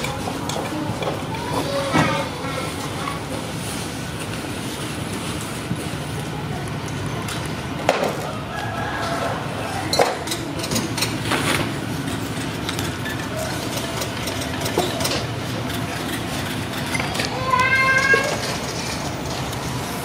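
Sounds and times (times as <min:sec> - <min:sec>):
low mechanical hum: 0:00.0 - 0:20.0.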